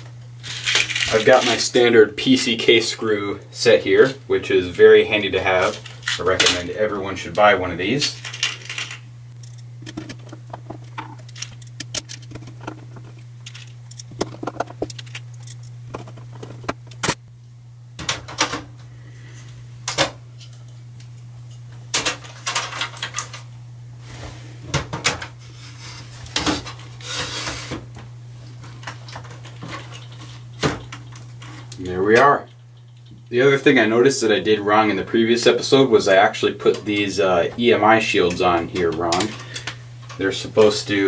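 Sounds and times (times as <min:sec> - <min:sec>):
steady low hum: 0:00.0 - 0:41.0
metallic clicks and rattles: 0:08.2 - 0:17.2.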